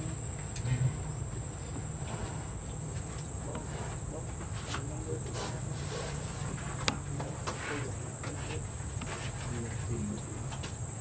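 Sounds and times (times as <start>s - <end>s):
low background rumble: 0.0s - 5.7s.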